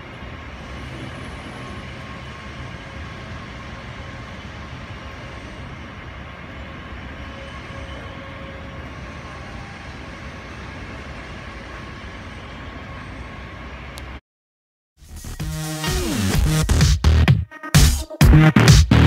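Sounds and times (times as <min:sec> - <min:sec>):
jet engines idling: 0:00.0 - 0:14.2.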